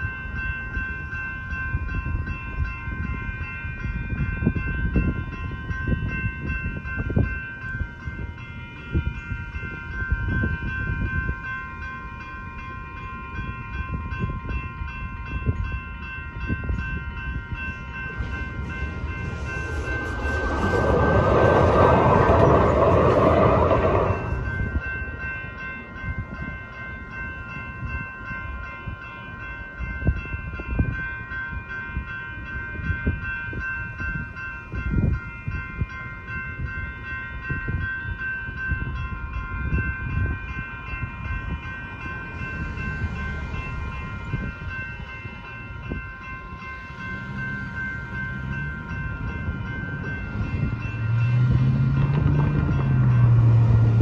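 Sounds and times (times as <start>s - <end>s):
light rail train passing: 0.0s - 54.0s
railroad crossing bells ringing: 0.0s - 54.0s.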